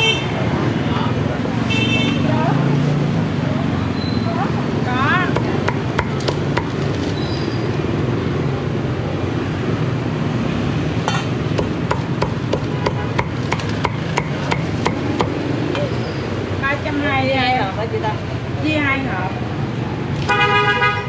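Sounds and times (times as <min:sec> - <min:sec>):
cleaver chopping on wooden board: 0:05.3 - 0:06.8, 0:11.1 - 0:15.9.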